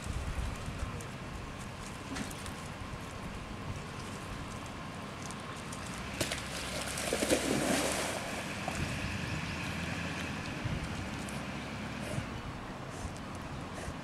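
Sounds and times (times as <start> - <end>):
wind noise on microphone: 0.0 - 4.8, 8.6 - 14.0
dog splashing in water: 5.8 - 8.9.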